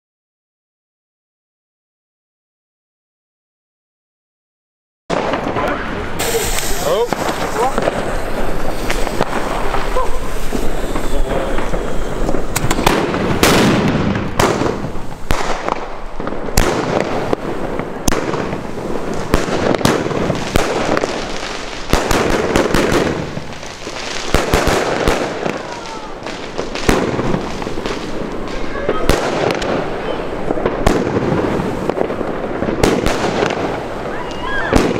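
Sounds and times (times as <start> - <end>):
firework cake reports: 5.1 - 34.9
rush of firework launches: 5.1 - 34.9.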